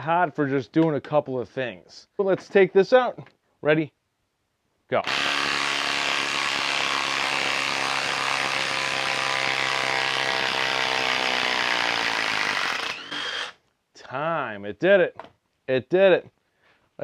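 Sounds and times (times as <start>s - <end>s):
impact driver hammering: 5.0s - 13.6s.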